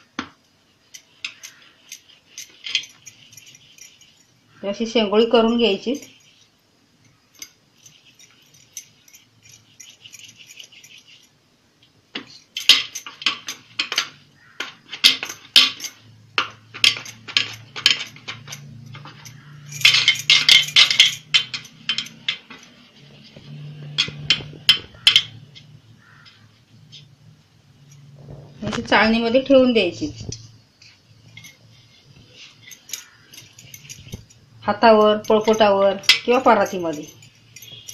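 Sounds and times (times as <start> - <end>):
bangles clinking and jangling: 0.0 - 11.5, 12.2 - 37.9
low steady hum: 15.2 - 37.9.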